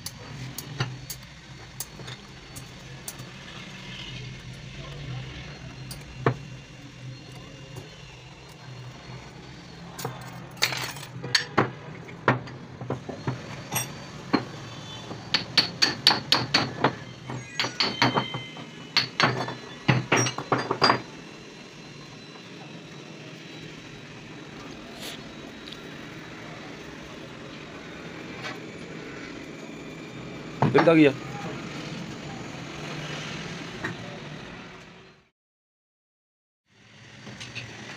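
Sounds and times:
hammer striking steel: 15.3s - 21.1s.

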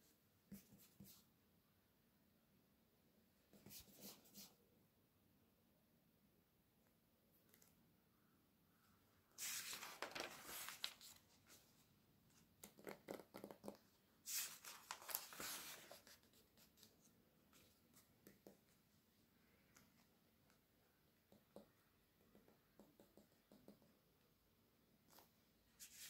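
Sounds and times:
paper pages turning: 9.4s - 11.8s, 12.6s - 18.1s.

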